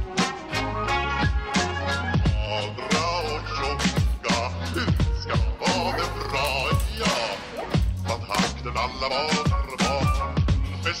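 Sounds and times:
music with kick drum beat: 1.2s - 2.6s.

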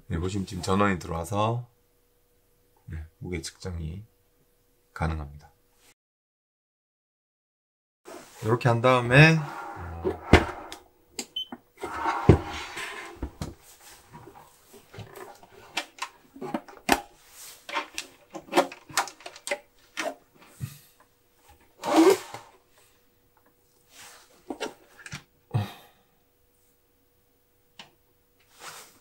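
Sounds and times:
faint steady hum: 0.0s - 5.9s, 8.1s - 29.0s
plastic scraping: 9.4s - 10.8s, 11.8s - 13.5s
plastic handling clicks and knocks: 17.7s - 20.2s.

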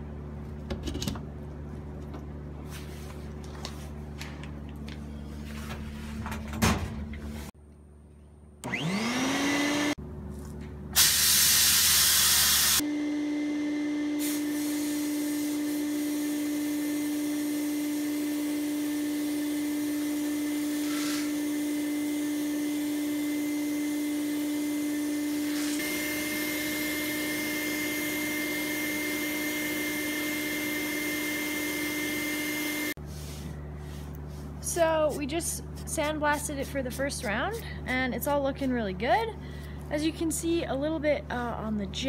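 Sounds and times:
shop vacuum motor hum: 8.6s - 10.0s, 11.0s - 33.6s
sandblasting hiss: 11.0s - 12.8s.

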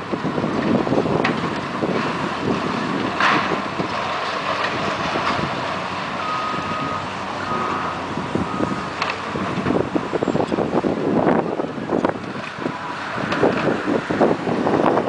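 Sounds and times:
heavy machinery din: 0.0s - 15.0s
reversing beeper: 6.2s - 9.0s.

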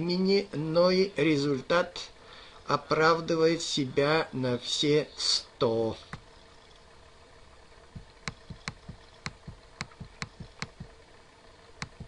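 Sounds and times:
faint room hiss: 0.0s - 12.0s
computer mouse clicks: 8.2s - 10.9s, 11.8s - 12.0s.

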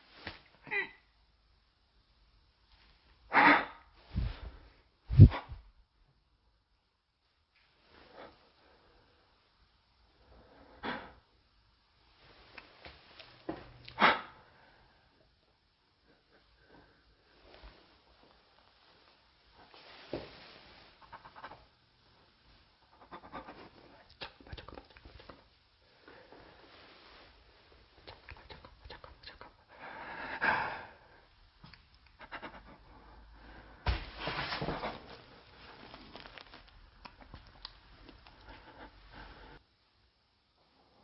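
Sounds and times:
clothing rustle: 17.3s - 21.0s, 26.4s - 28.0s, 33.9s - 38.2s
person breathing close: 29.7s - 31.4s, 32.3s - 33.9s, 38.2s - 39.7s.

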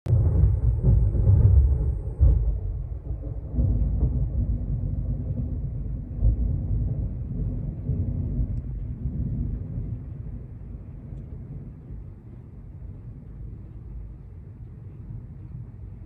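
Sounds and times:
storm wind gusting: 0.1s - 16.0s.

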